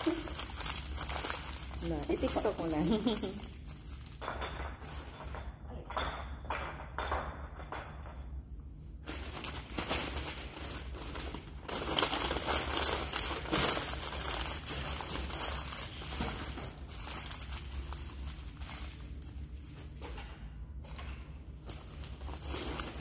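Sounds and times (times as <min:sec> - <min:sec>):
wrapping paper crinkling: 0:00.0 - 0:04.2, 0:09.0 - 0:20.2, 0:20.8 - 0:23.0.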